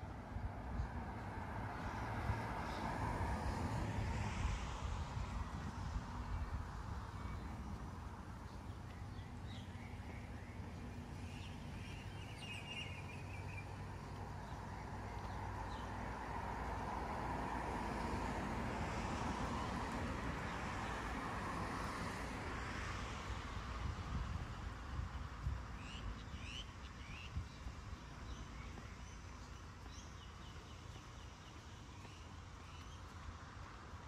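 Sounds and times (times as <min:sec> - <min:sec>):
hum of car traffic: 0:00.0 - 0:34.0
bird chirps: 0:08.5 - 0:15.9.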